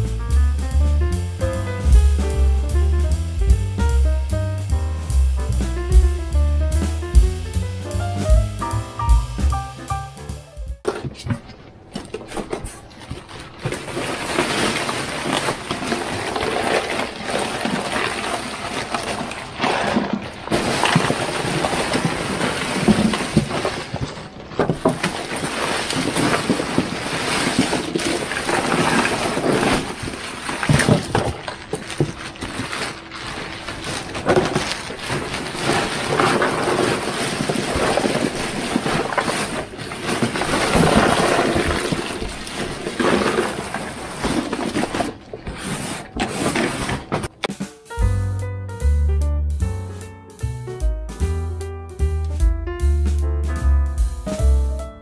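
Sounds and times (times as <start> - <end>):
ice cubes clattering into cooler: 10.9 - 47.6
plastic bags crinkling: 11.5 - 47.4.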